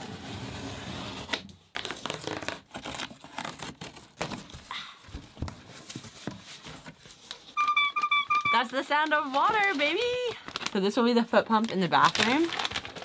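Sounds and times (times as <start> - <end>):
packaging crinkling and tearing: 1.7 - 4.8, 6.8 - 13.0.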